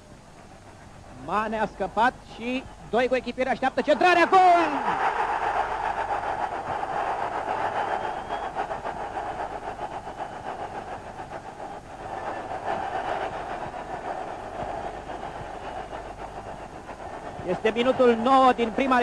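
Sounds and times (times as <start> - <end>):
stadium crowd cheering: 3.0 - 10.8.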